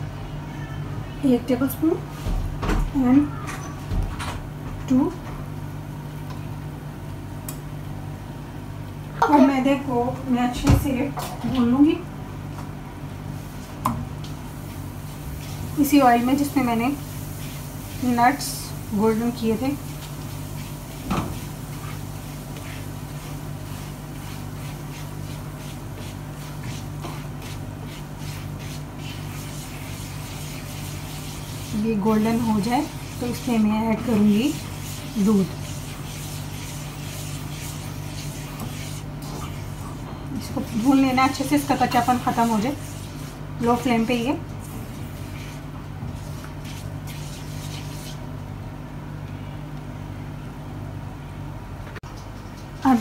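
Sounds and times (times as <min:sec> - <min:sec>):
flour sizzling in oil: 0:13.4 - 0:48.4
spatula stirring in a pan: 0:14.6 - 0:48.3.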